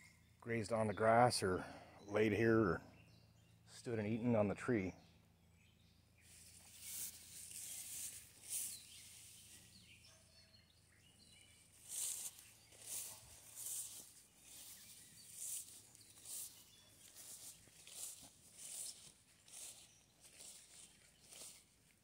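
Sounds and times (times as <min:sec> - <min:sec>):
faint bird chirps: 0:01.6 - 0:21.9
footsteps swishing through grass: 0:06.2 - 0:10.0, 0:11.6 - 0:22.0.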